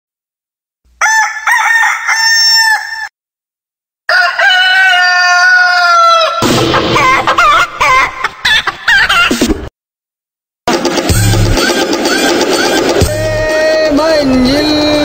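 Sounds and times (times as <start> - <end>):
rooster crowing: 1.0 - 3.2, 4.1 - 6.4
music with drums: 6.4 - 7.4, 10.7 - 15.0.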